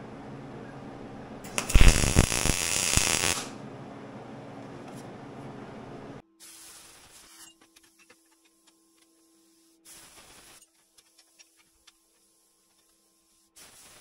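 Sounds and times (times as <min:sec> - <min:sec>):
steady low hum: 0:00.0 - 0:06.2
welding arc crackling and hissing: 0:01.4 - 0:03.6, 0:06.4 - 0:07.6, 0:09.6 - 0:14.0.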